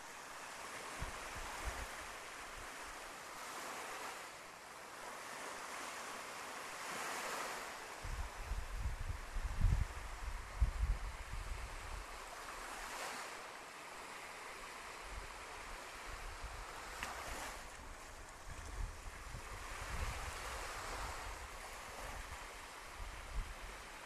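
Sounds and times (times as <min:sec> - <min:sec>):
ocean waves on beach: 0:00.0 - 0:24.0
wind on microphone: 0:00.8 - 0:02.8, 0:06.8 - 0:13.3, 0:14.7 - 0:24.0.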